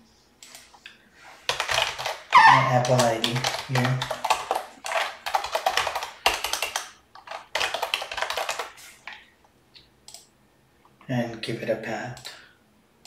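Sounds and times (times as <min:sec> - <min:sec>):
fast typing on keyboard: 0:01.4 - 0:08.8.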